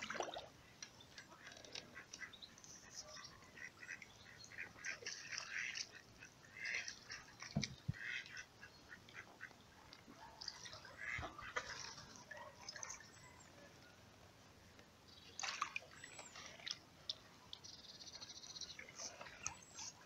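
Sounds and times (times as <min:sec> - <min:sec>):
ducks quacking: 0:01.8 - 0:09.5, 0:10.7 - 0:12.0.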